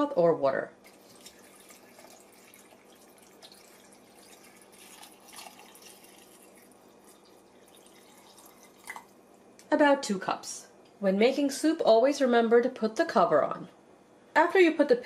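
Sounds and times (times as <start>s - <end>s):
liquid trickling into blender: 0.9s - 9.2s.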